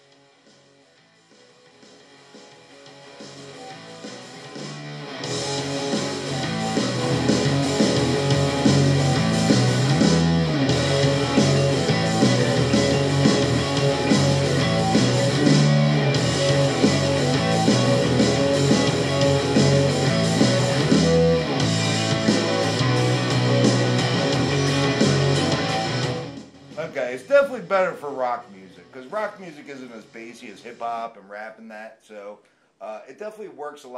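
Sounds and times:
rock song through speaker: 0.0s - 31.0s.

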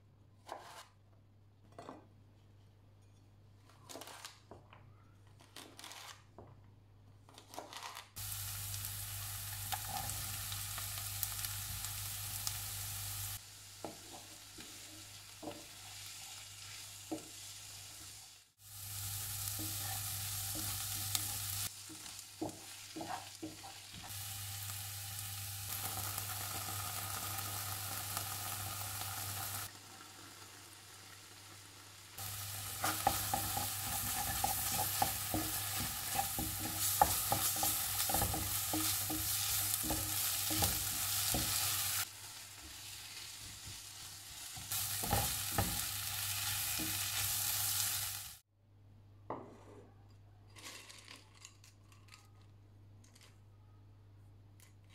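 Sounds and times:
vegetables sizzling in oil: 8.2s - 48.4s
wooden spatula scraping a pan: 19.5s - 24.1s, 32.2s - 42.0s.

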